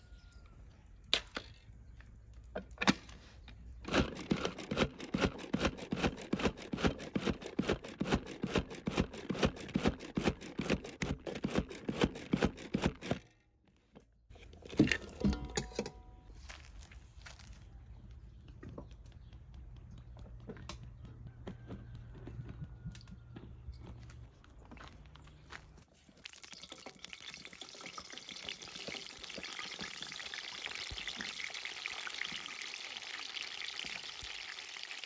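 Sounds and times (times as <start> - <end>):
lid clicking: 14.8 - 16.1.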